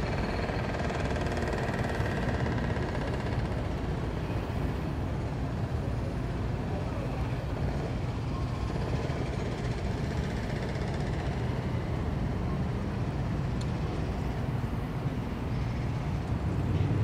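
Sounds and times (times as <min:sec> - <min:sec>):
distant city traffic rumble: 0:00.0 - 0:17.0.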